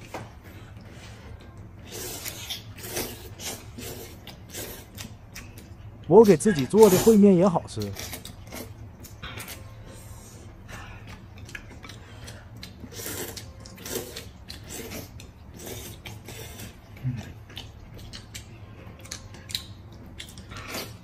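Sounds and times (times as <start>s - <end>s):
people slurping noodles: 0.8s - 5.0s, 11.9s - 17.5s.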